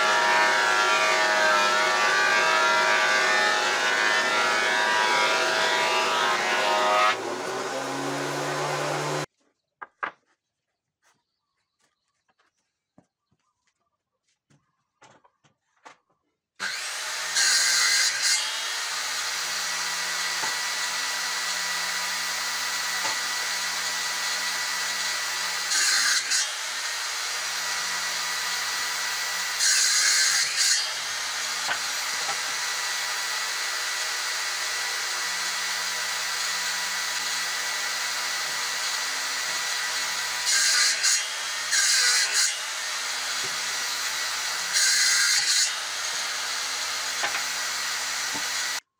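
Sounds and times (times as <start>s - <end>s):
circular saw whining: 0.0s - 9.3s, 16.6s - 27.0s
saw blade cutting wood: 0.0s - 9.3s, 16.6s - 48.9s.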